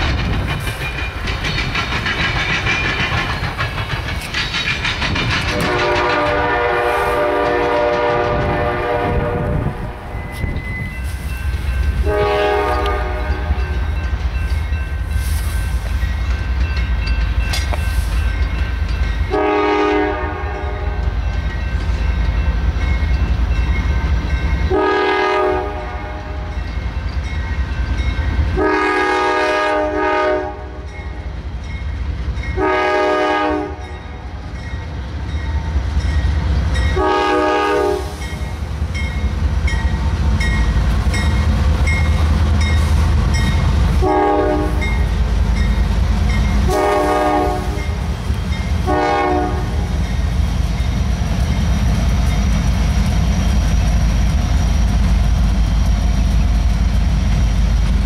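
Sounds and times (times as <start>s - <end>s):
locomotive engines rumbling: 0.0s - 58.0s
multi-note train air horn: 5.5s - 10.0s, 12.0s - 13.7s, 19.3s - 21.1s, 24.7s - 26.5s, 28.6s - 30.9s, 32.6s - 33.9s, 37.0s - 38.3s, 43.9s - 44.9s, 46.6s - 48.0s, 48.8s - 49.9s.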